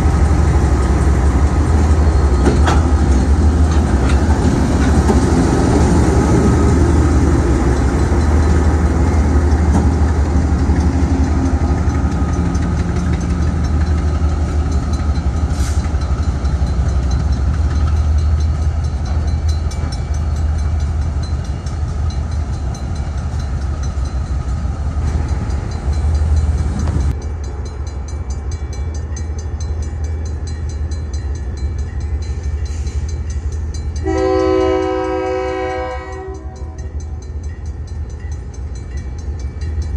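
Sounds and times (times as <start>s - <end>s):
diesel locomotive rumbling: 0.0s - 39.9s
locomotive air horn: 34.0s - 36.8s.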